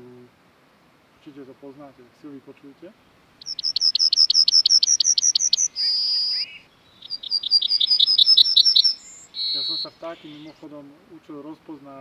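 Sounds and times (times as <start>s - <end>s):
yellowhammer singing: 2.9s - 12.0s.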